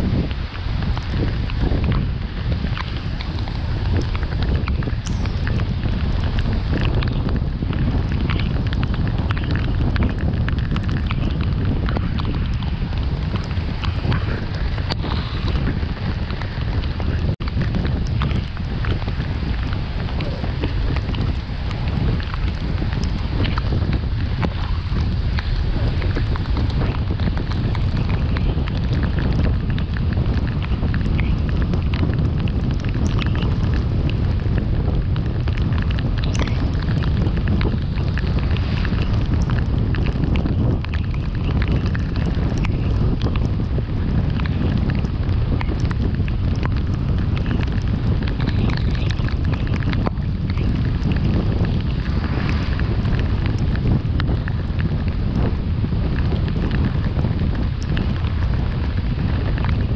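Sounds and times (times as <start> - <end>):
car driving on wet road: 0.0 - 59.9
light ticks: 35.0 - 43.5
faint ticks: 35.0 - 52.7.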